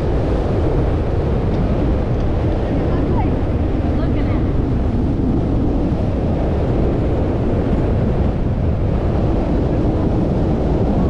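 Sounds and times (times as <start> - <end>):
wind noise on microphone: 0.0 - 11.0.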